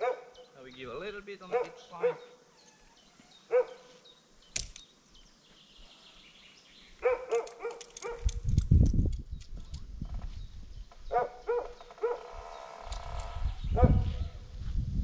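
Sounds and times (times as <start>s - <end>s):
dog barking: 0.0s - 0.4s, 1.5s - 2.4s, 3.5s - 4.0s, 7.0s - 8.3s, 11.1s - 12.3s.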